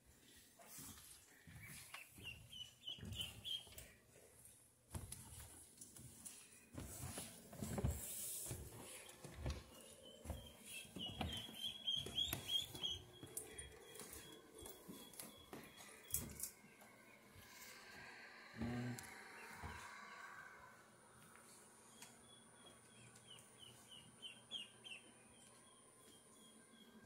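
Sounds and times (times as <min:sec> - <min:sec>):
footsteps on carpeted stairs: 0:00.1 - 0:17.4
ducklings peeping: 0:01.4 - 0:04.0, 0:10.3 - 0:15.8, 0:21.9 - 0:25.8.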